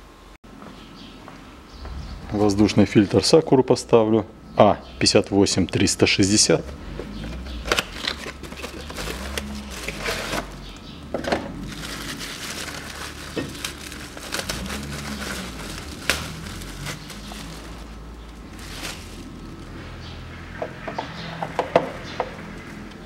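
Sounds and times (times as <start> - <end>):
plastic wrapping crinkling: 7.3 - 10.8, 11.5 - 19.8.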